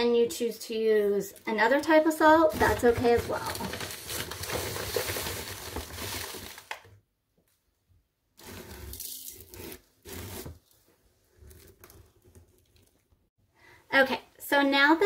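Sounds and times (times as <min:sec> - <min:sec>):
plastic gloves rustling: 0:02.2 - 0:07.0
plastic bag crinkling: 0:02.5 - 0:07.0.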